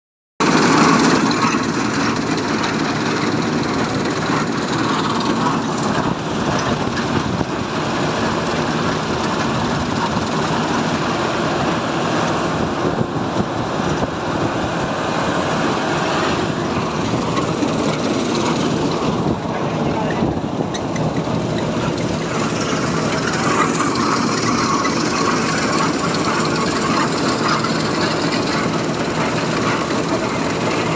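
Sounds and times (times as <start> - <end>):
combine harvester drone: 0.4 - 30.9.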